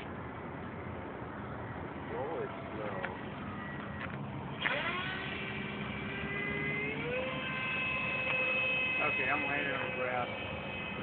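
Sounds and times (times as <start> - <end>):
model jet motor whining: 4.5 - 11.0.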